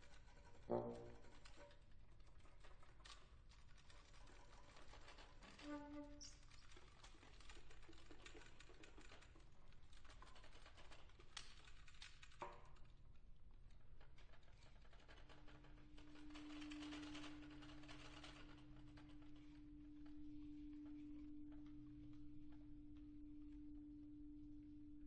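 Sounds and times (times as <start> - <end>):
soft woodwind music: 5.6 - 6.2.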